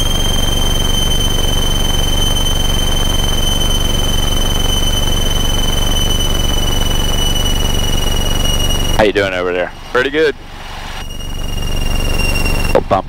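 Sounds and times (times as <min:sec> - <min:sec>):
aircraft piston engine droning: 0:00.0 - 0:13.0
high-pitched whine: 0:00.0 - 0:13.0.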